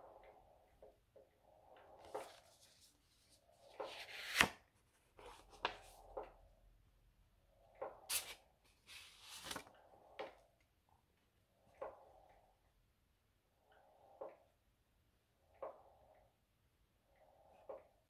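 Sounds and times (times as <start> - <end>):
envelope rustling and opening: 3.8 - 4.6, 8.1 - 9.7
postcard sliding out scraping: 3.9 - 4.6.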